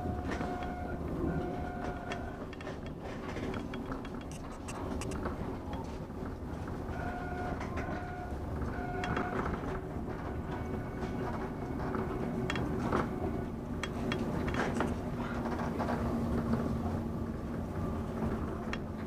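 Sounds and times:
steady hum: 0.0 - 19.0
train wheels rumbling on rails: 0.0 - 19.0
clicks: 2.0 - 5.8.

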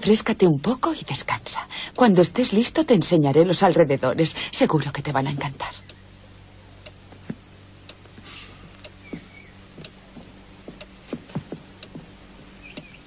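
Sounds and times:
soft low knocks: 7.1 - 13.0.

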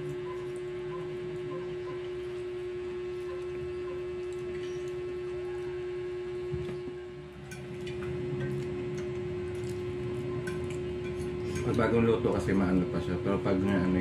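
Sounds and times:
electrical hum: 0.0 - 14.0
fork clicking against a plate: 7.4 - 11.9.

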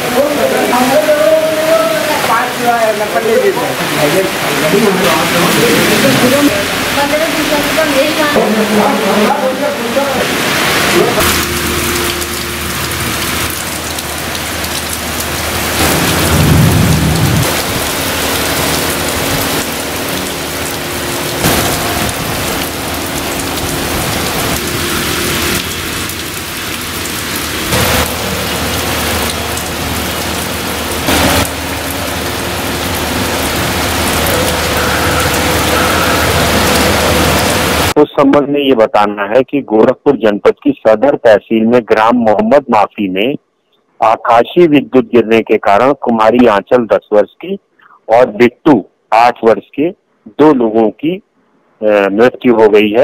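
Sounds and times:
heavy rain hissing: 0.0 - 38.0
thunder rumble: 10.2 - 38.0.

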